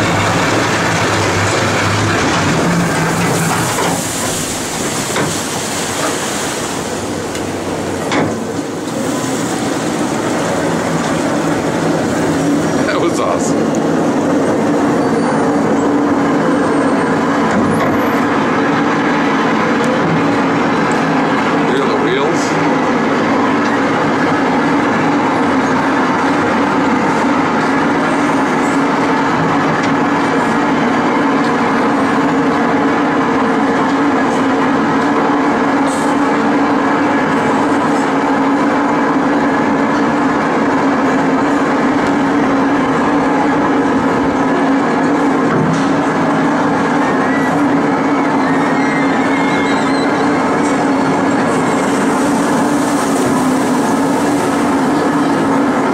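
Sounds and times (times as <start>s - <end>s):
mechanical rumble: 0.0s - 15.0s
water rushing: 0.0s - 38.6s, 39.4s - 55.9s.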